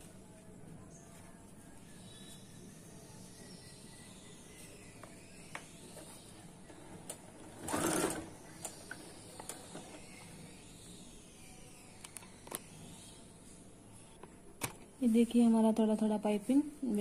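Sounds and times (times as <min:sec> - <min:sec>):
sewing machine stitching: 0:07.4 - 0:08.4.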